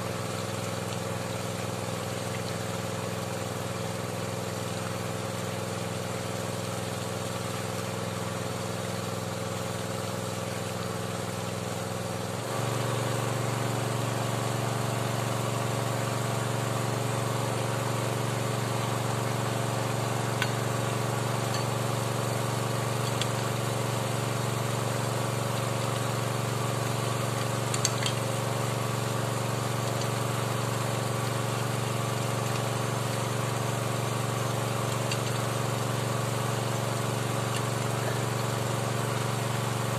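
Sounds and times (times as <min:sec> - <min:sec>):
small engine running: 0:00.0 - 0:39.9.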